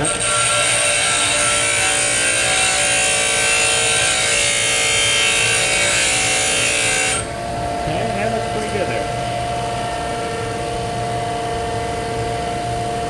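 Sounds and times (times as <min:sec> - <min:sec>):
grinder wheel grinding steel: 0:00.0 - 0:07.3
grinder motor hum: 0:00.0 - 0:13.0.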